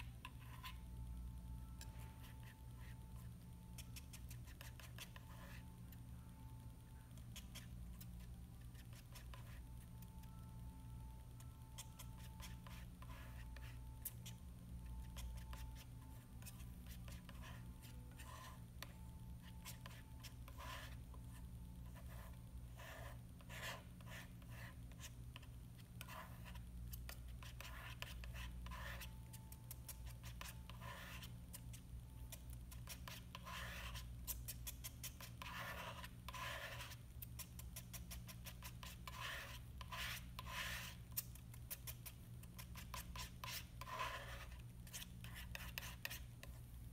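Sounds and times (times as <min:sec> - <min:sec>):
palette knife scraping paint: 0:00.0 - 0:00.9, 0:11.7 - 0:21.1, 0:21.8 - 0:46.6
steady low hum: 0:00.0 - 0:46.9.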